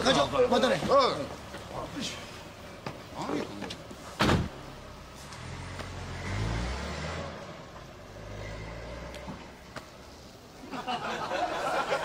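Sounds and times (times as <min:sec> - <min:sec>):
car engine pulling away: 0:04.5 - 0:09.7.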